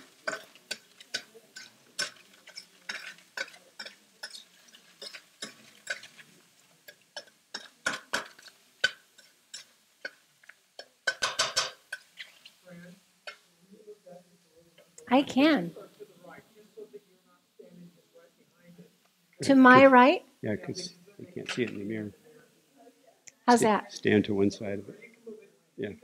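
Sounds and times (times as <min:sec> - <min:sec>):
utensil tapping a metal pan: 0:10.8 - 0:11.8.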